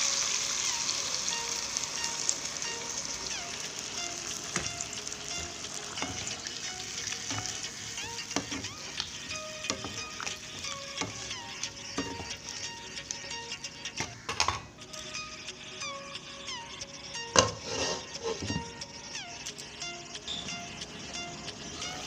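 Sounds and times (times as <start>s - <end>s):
water sizzling in a hot wok: 0.0s - 15.5s, 17.1s - 19.4s, 20.3s - 22.0s
spatula scraping a pan: 17.3s - 18.7s.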